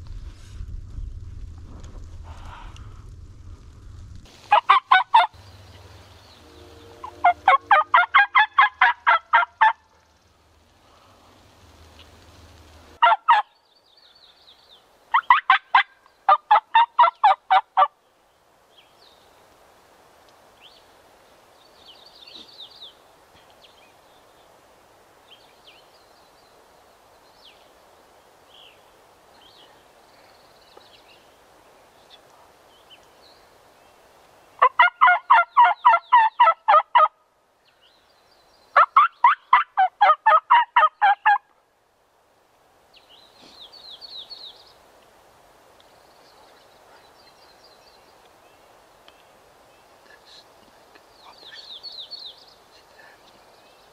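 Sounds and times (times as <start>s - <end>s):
turkey calling in rapid bursts: 4.5s - 5.4s, 7.0s - 9.8s, 13.0s - 13.5s, 15.1s - 17.9s, 34.6s - 37.1s, 38.8s - 41.4s
faint songbird chirps: 20.5s - 24.6s, 42.9s - 44.9s, 45.8s - 53.9s.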